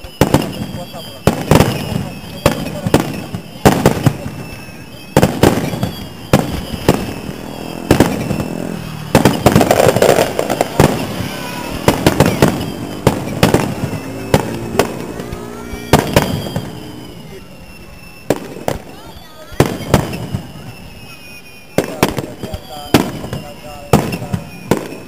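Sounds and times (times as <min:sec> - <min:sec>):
fireworks bursting with sharp bangs: 0:00.0 - 0:25.0.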